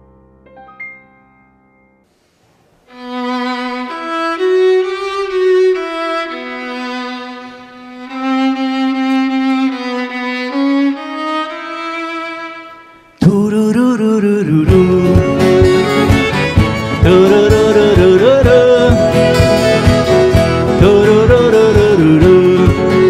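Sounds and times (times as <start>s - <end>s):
piano notes: 0.0s - 2.1s, 15.1s - 23.0s
solo violin melody: 2.8s - 13.2s, 14.8s - 23.0s.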